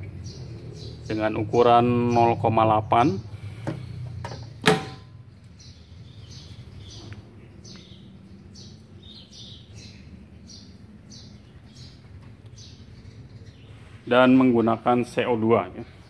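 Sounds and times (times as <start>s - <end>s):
metal cover snapping shut: 3.7s - 5.2s.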